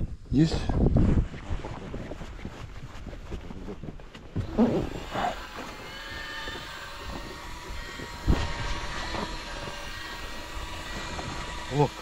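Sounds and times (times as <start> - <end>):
outboard motor running: 3.0 - 12.0.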